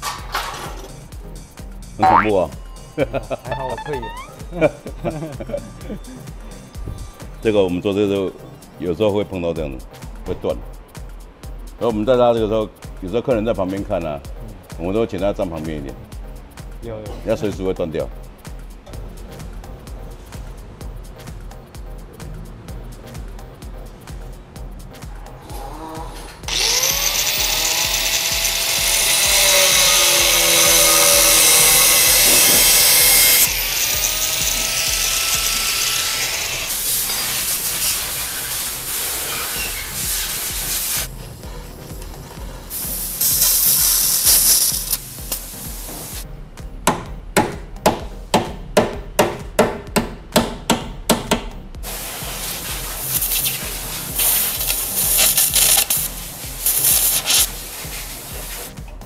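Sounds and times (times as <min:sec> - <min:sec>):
hissing power tool: 0:26.5 - 0:41.1, 0:42.7 - 0:46.2, 0:51.8 - 0:56.0, 0:56.6 - 0:57.5.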